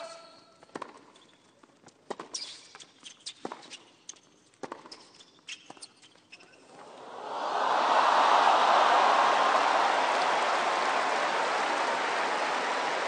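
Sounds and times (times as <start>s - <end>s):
crowd applause and cheering: 6.7s - 13.0s.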